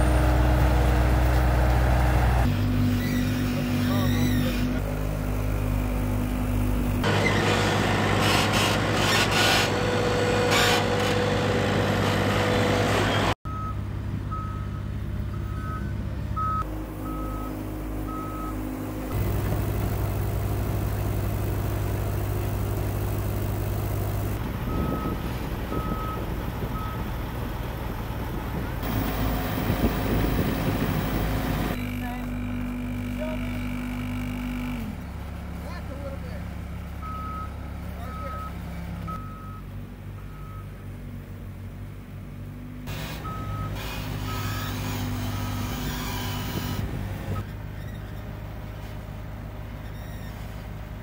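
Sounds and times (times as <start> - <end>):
reversing alarm beeping: 13.5 - 18.6, 24.6 - 27.1, 37.0 - 40.7, 43.2 - 44.6
machine engines droning: 15.1 - 39.2.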